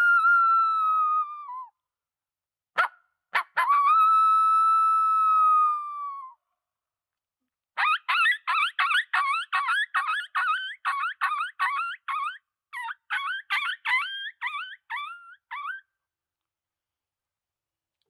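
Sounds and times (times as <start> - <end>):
coyote call howl: 0.0 - 1.7, 3.4 - 6.4, 7.8 - 15.8
coyote call yips: 7.8 - 15.9.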